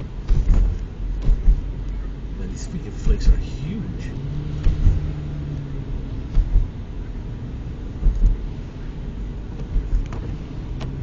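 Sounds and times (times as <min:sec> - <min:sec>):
short low thumps: 0:00.0 - 0:01.9, 0:04.2 - 0:07.0, 0:07.8 - 0:08.6
car engine hum: 0:00.0 - 0:11.0.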